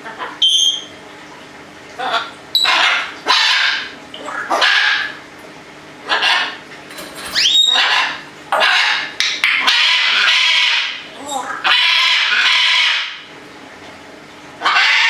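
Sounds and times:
parrots squawking: 0.0 - 0.9, 2.0 - 5.2, 6.0 - 6.6, 7.3 - 13.3, 14.6 - 15.0.

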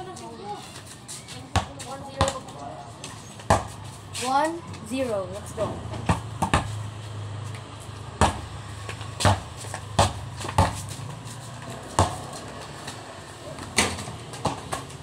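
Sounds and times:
basketball bouncing on concrete: 1.4 - 3.9, 5.9 - 15.0.

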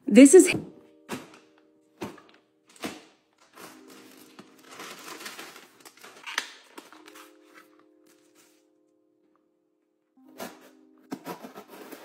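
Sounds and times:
plastic bag and cardboard rustling: 0.9 - 8.7, 10.4 - 12.0.

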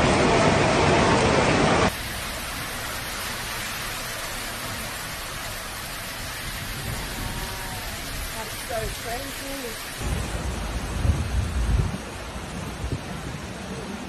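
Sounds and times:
loud rushing noise: 0.0 - 3.1
heavy rain pouring on street: 0.0 - 14.0.

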